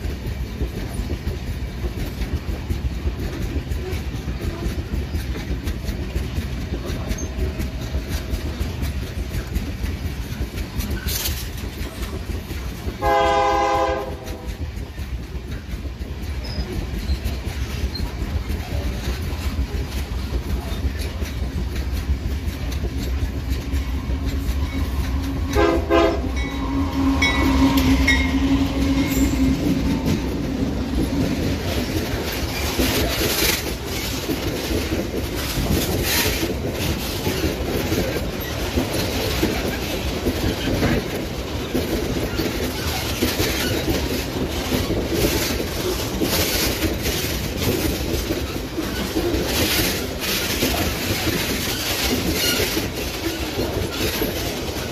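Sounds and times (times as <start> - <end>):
low rumble of locomotives: 0.0 - 54.9
train wheels clattering over rail joints: 0.0 - 54.9
locomotive horn blasts: 13.0 - 14.5, 25.5 - 26.6.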